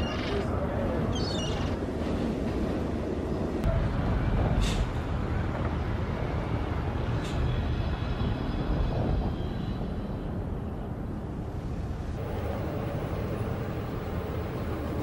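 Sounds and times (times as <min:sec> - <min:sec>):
low mechanical rumble: 0:12.2 - 0:15.0.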